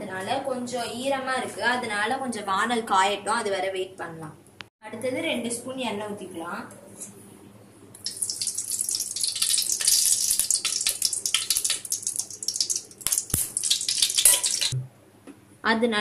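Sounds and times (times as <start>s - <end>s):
mustard seeds popping in oil: 8.0s - 14.8s
oil sizzling: 8.0s - 14.8s.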